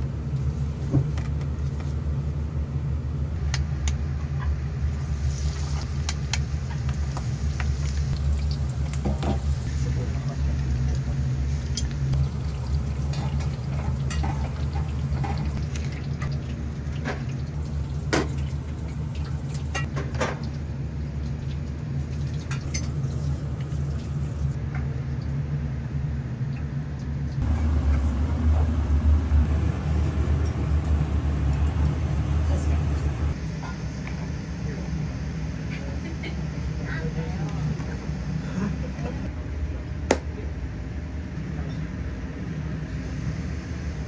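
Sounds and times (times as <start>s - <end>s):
steady low hum: 0.0s - 44.0s
dishes and utensils clinking: 22.5s - 23.0s.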